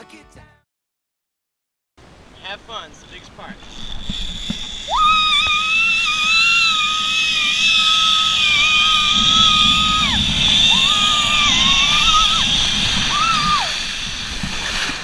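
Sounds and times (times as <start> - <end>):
steady rushing hiss: 2.1 - 15.0
girl screaming: 4.9 - 12.5, 13.1 - 13.8.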